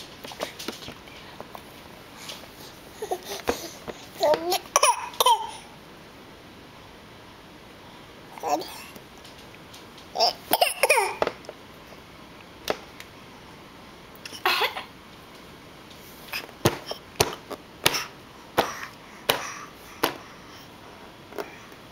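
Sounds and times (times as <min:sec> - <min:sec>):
baby fake coughing: 0:04.6 - 0:05.7, 0:10.2 - 0:11.2, 0:14.3 - 0:14.9.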